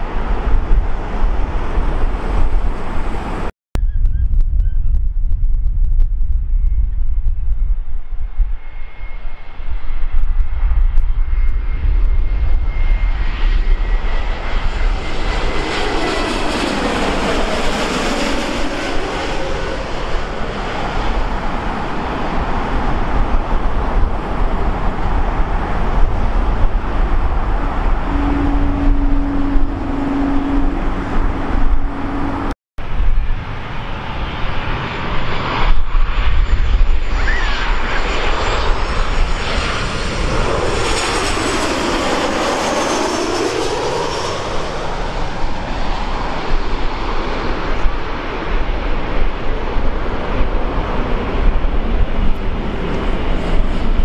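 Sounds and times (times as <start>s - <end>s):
jet airliners passing overhead: 0.0s - 54.0s.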